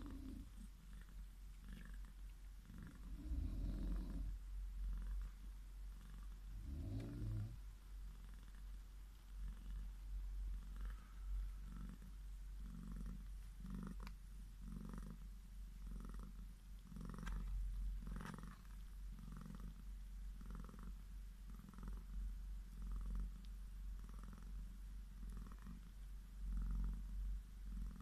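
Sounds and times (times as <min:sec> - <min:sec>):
cat purring: 0:00.0 - 0:28.0
faint clicks: 0:13.9 - 0:14.2.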